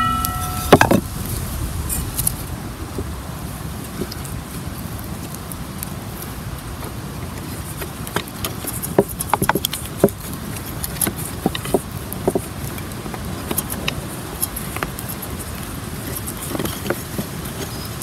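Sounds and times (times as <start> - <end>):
low background rumble: 0.0 - 7.4.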